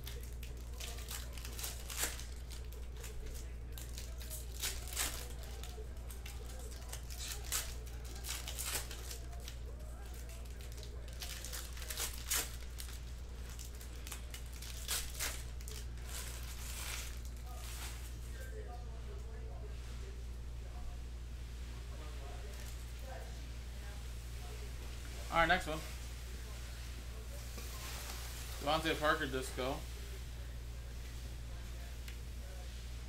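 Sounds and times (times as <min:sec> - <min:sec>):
foil wrappers tearing and crinkling: 0:00.0 - 0:18.6, 0:27.3 - 0:29.8
steady low hum: 0:00.0 - 0:33.0.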